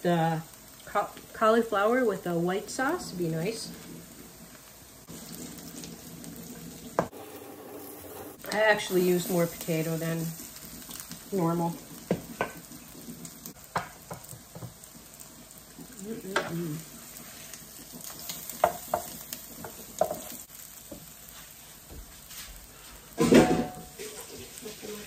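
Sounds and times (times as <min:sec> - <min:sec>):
fish cakes sizzling in oil: 0:00.0 - 0:25.0
spatula tapping and scraping pan: 0:12.0 - 0:12.7, 0:13.6 - 0:14.8, 0:18.5 - 0:21.1.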